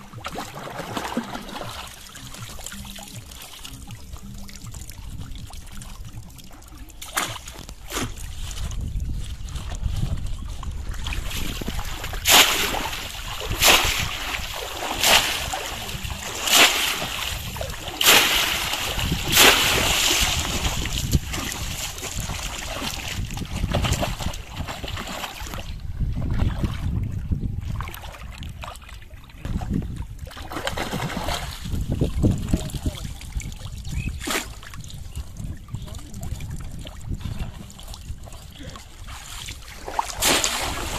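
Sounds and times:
fish trap splashing into water: 0.0s - 3.8s, 7.0s - 8.4s, 11.0s - 25.7s, 30.3s - 31.7s, 39.7s - 40.9s
water sloshing: 0.0s - 40.9s
wind rumble on microphone: 1.6s - 40.9s.

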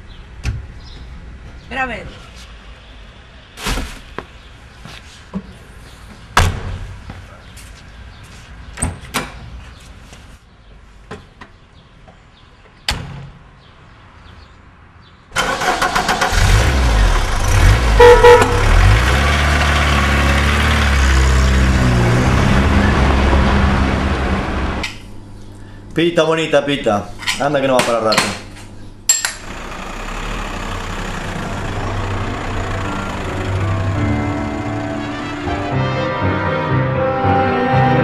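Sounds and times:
car horn toots: 17.9s - 19.0s, 32.8s - 36.4s
car engine running: 29.4s - 35.6s.

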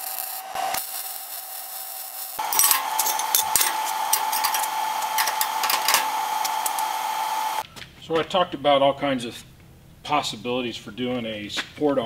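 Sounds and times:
clicks of steel tools handled: 2.4s - 6.9s
steady high hum: 2.4s - 7.6s.

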